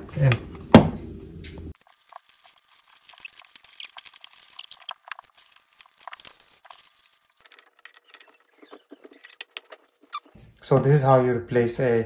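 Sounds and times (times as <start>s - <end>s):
wires scratching and rustling: 1.7s - 10.5s.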